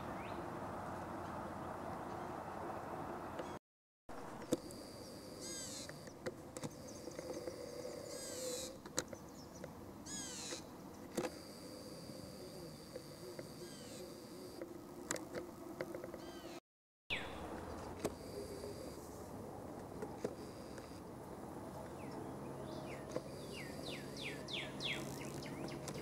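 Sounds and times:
songbird singing: 0:00.0 - 0:00.5, 0:04.5 - 0:15.2, 0:16.1 - 0:19.2, 0:21.7 - 0:26.0.

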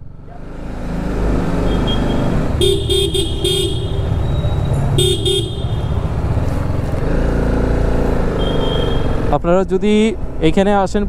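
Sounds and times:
road noise: 0:00.0 - 0:11.0
vehicle horn short beeps: 0:08.4 - 0:09.2.

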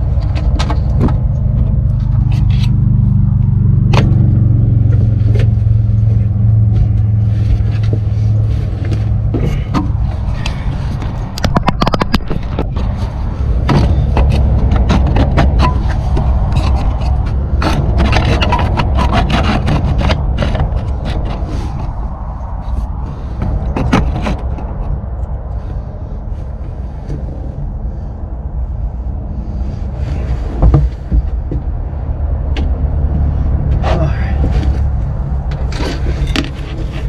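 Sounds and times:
scrapes clicks and knocks of handling: 0:00.0 - 0:02.9, 0:04.8 - 0:22.0, 0:23.3 - 0:25.4, 0:32.5 - 0:37.0
steady low rumble: 0:00.0 - 0:37.0.

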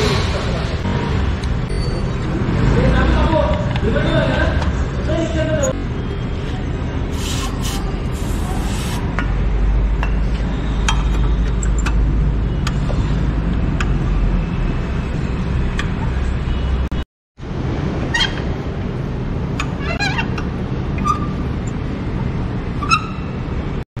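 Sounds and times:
aerosol spray hiss: 0:07.2 - 0:09.0.

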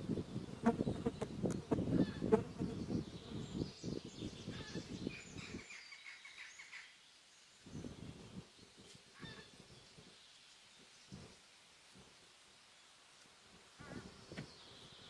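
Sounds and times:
birds chirping: 0:00.0 - 0:11.5.

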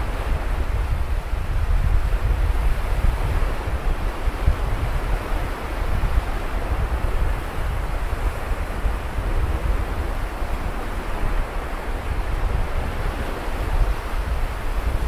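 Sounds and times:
surf washing onto beach: 0:00.0 - 0:15.0
wind on microphone: 0:00.0 - 0:15.0.

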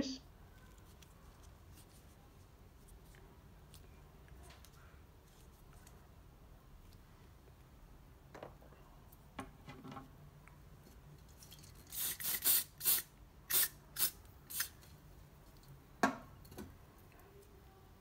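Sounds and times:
aerosol spray bursts: 0:11.9 - 0:14.8.

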